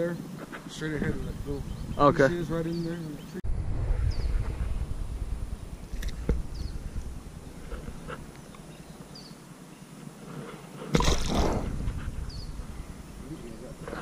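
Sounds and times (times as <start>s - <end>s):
bird chirping: 1.1s - 3.4s, 5.5s - 10.0s, 11.8s - 14.0s
fish splashing into water: 10.9s - 11.7s.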